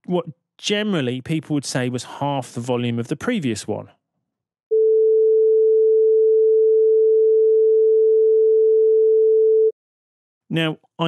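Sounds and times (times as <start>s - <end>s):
sine-wave test tone: 4.8s - 9.7s.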